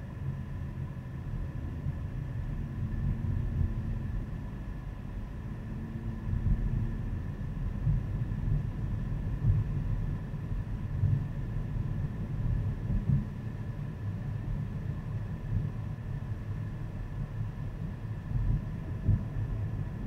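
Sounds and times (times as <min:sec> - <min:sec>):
faint steady whine: 0:00.0 - 0:20.0
road and engine rumble: 0:00.0 - 0:20.0.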